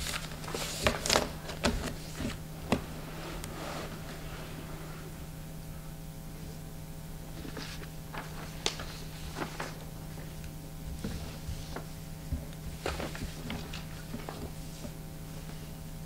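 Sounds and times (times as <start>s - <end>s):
paper rustling: 0.0s - 4.1s, 7.4s - 10.4s, 12.7s - 14.9s
steady low hum: 0.0s - 16.0s.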